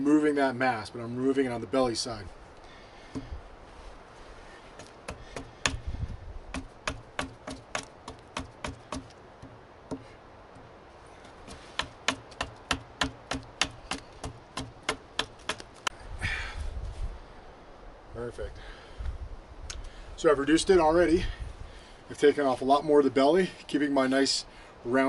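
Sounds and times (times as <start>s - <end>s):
wind noise: 3.1s - 7.0s, 15.8s - 21.9s
axe chopping wood: 4.8s - 5.9s, 6.5s - 10.1s, 11.4s - 15.7s.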